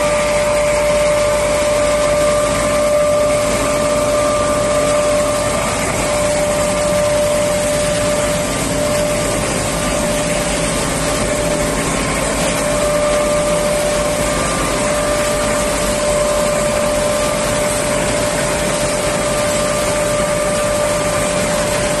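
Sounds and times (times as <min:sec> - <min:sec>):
high hum tone: 0:00.0 - 0:22.0
mill machinery whirring: 0:00.0 - 0:22.0.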